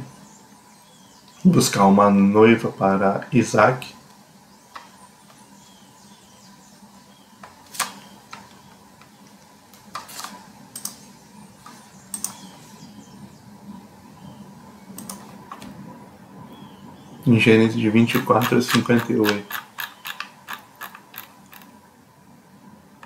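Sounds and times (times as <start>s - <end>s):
faint steady hum: 0.0s - 23.0s
computer controls clicking: 10.0s - 11.0s, 11.6s - 12.5s, 14.9s - 15.6s, 18.1s - 21.7s.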